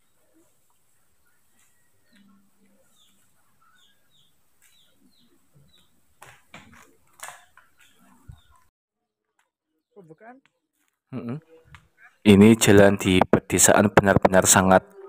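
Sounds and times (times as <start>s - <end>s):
small bird chirping: 0.0s - 8.7s.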